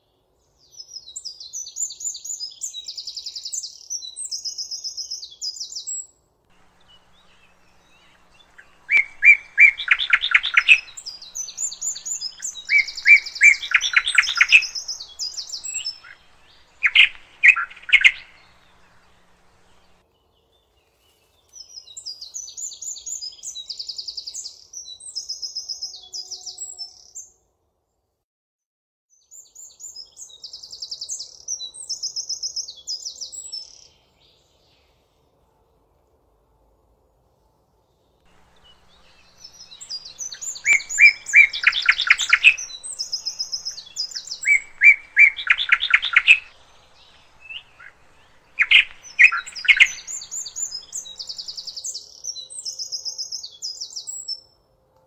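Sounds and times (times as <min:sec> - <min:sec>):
lower louder bird song: 0:00.0 - 0:28.1, 0:29.1 - 0:55.0
high trilled birdsong: 0:06.6 - 0:20.0, 0:38.3 - 0:54.4.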